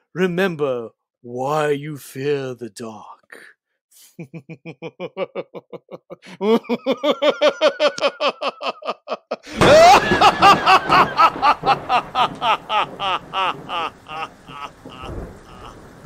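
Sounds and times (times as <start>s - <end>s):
man laughing evilly: 4.0s - 16.0s
loud rumbling crash: 9.6s - 16.0s.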